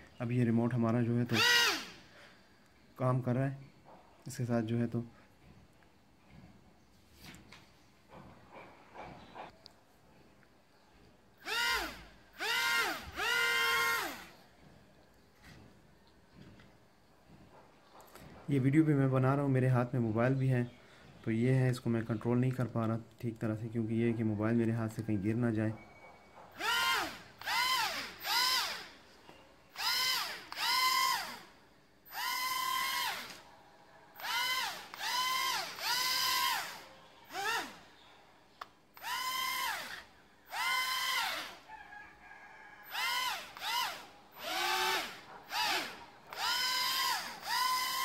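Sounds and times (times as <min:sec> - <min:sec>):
small drone motors whining: 0:11.4 - 0:14.3, 0:26.6 - 0:28.9, 0:29.8 - 0:31.5, 0:32.1 - 0:33.4, 0:34.2 - 0:37.8, 0:39.0 - 0:41.6, 0:42.9 - 0:48.0.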